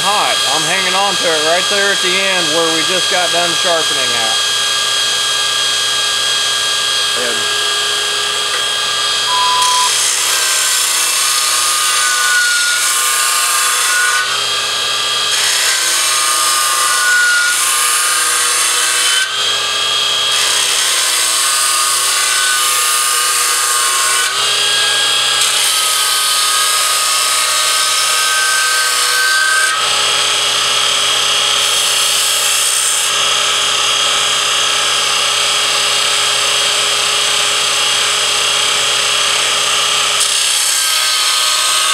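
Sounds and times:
belt grinder grinding steel: 0.0 - 41.9.

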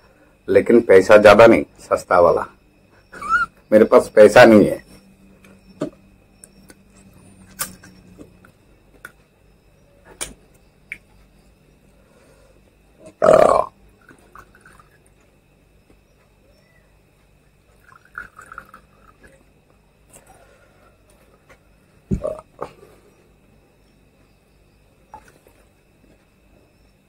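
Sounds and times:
liquid trickling into glass: 14.3 - 15.0, 17.7 - 19.4.

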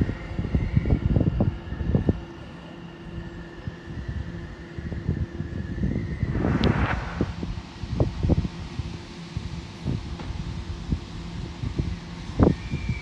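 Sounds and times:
faint steady whine: 0.0 - 9.8
wind buffeting microphone: 5.6 - 8.5.

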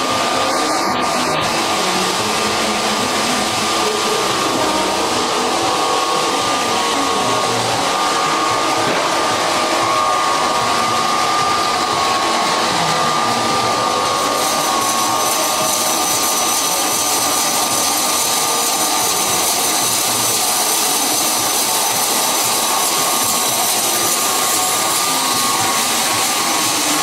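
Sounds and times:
higher whine: 0.0 - 27.0
woodworking machine motor whine: 0.0 - 27.0.

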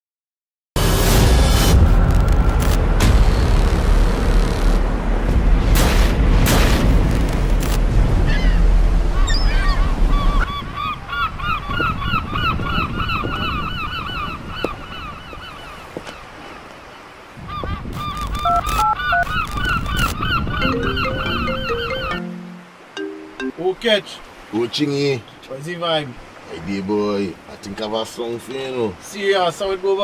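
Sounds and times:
deep loud boom: 0.8 - 8.9.

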